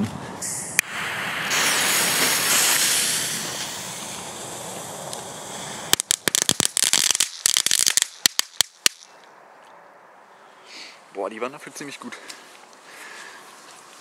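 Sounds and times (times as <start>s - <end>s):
firework fuses hissing: 0.4s - 9.0s
firework crackle of sharp snaps: 0.8s - 9.3s.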